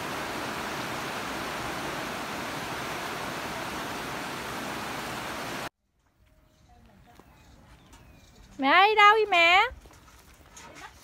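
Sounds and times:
heavy rain pouring: 0.0s - 5.7s.

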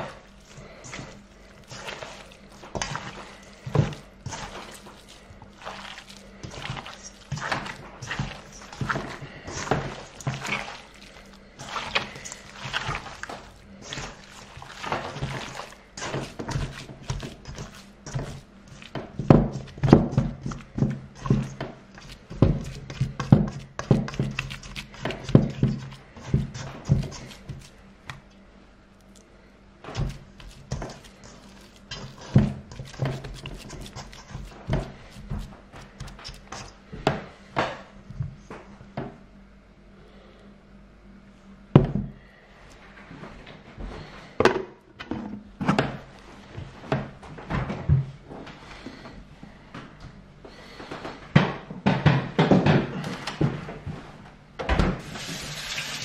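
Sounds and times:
wet squishing of meat: 0.0s - 36.8s.

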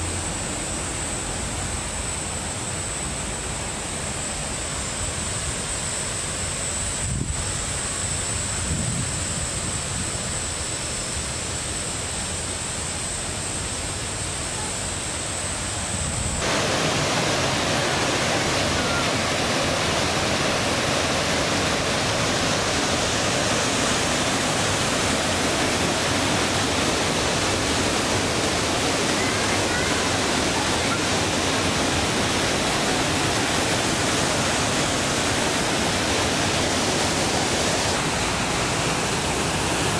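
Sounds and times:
waterfall rushing: 12.9s - 39.9s.

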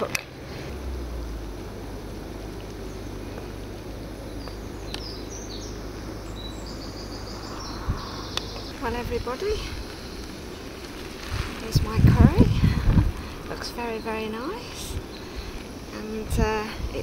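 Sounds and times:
gas camping stove roaring: 0.0s - 17.0s
birds chirping: 1.2s - 17.0s.

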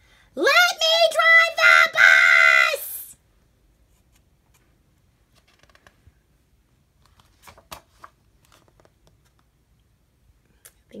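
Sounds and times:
paper page turning rustle: 5.3s - 6.0s, 7.0s - 9.5s.

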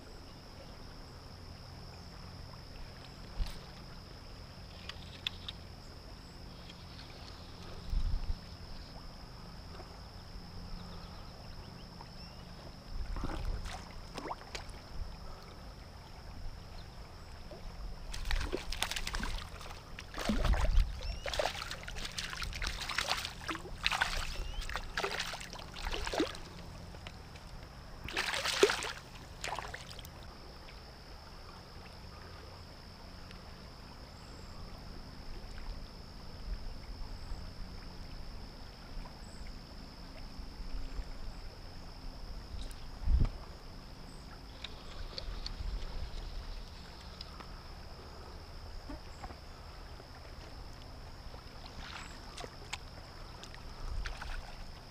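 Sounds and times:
river current: 0.0s - 36.4s, 37.0s - 54.9s
fish splashing at the surface: 18.1s - 26.6s, 28.1s - 30.0s.

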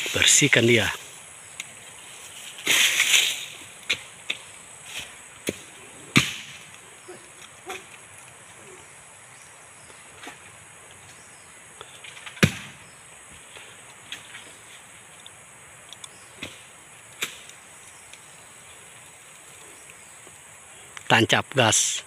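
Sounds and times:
blade chopping wood: 12.4s - 12.7s.

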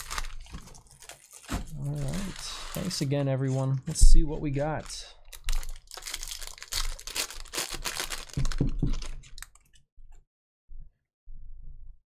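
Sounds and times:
wrapper crinkling and tearing: 0.0s - 3.1s, 4.8s - 9.6s.

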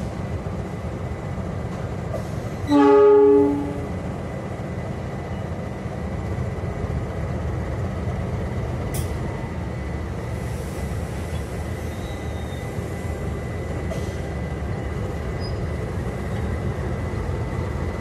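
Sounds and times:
locomotive horn blast: 2.6s - 4.0s.

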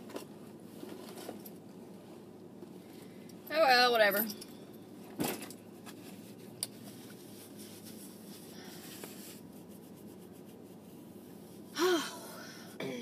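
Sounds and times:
rustling of handled objects: 0.0s - 3.0s, 4.0s - 11.2s.

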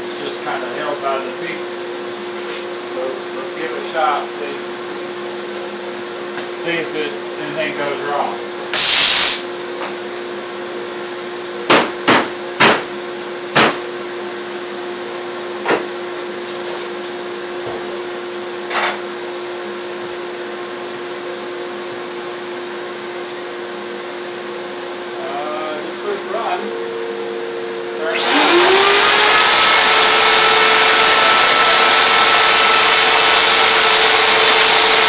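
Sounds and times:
sharp knocks: 13.6s - 13.8s
router spindle whine: 25.3s - 35.0s.

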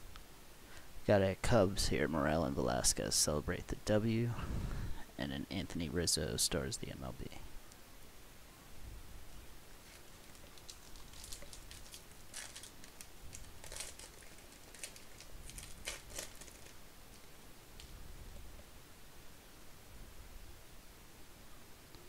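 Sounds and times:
plastic wrapper crinkling and tearing: 9.8s - 17.3s.

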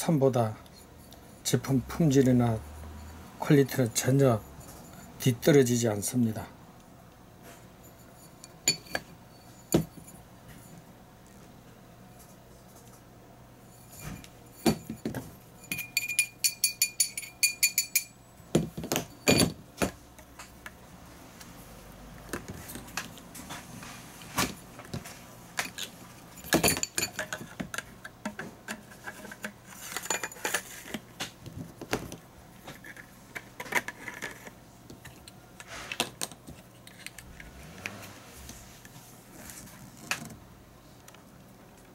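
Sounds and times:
rattling taps with metallic ring: 8.3s - 10.0s, 14.0s - 18.2s.

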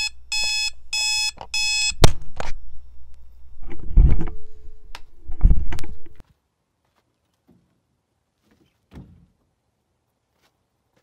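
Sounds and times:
alarm clock beeping: 0.0s - 2.0s.

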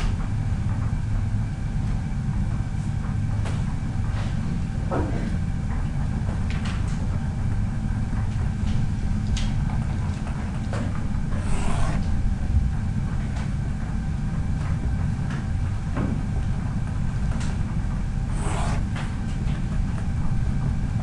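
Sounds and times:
pen writing on paper: 11.3s - 12.1s, 18.3s - 19.1s.

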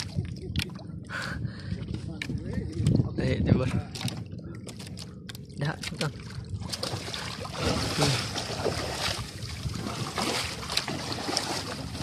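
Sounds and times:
wind buffeting microphone: 0.0s - 12.0s
water lapping against canoe: 3.9s - 12.0s.

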